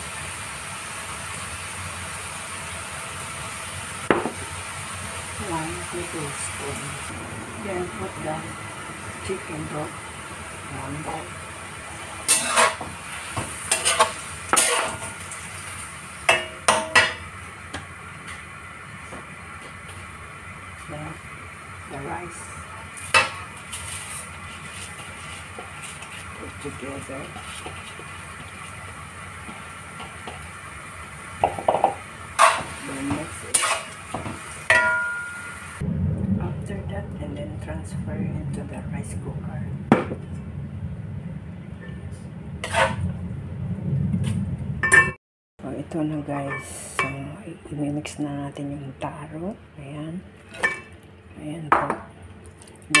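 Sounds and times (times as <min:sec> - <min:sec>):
metal turner scraping a wok: 0:12.2 - 0:12.9, 0:13.6 - 0:15.2, 0:23.0 - 0:26.3, 0:32.4 - 0:32.8, 0:33.4 - 0:34.0, 0:42.6 - 0:43.1.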